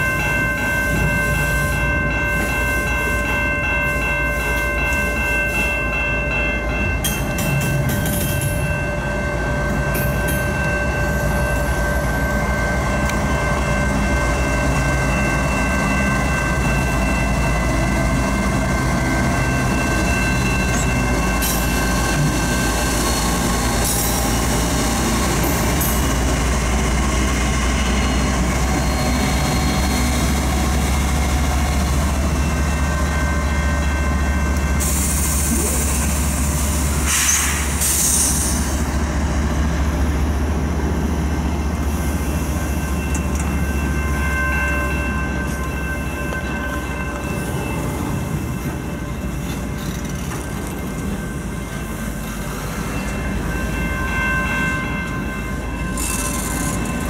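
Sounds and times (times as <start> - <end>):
freight train rumbling: 0.0 - 57.0
train wheel squeal: 19.4 - 33.0, 34.6 - 39.0, 41.8 - 51.4, 55.8 - 57.0.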